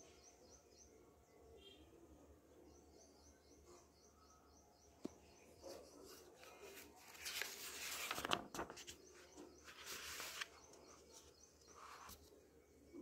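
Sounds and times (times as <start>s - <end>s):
paper pages rustling: 5.8s - 12.3s.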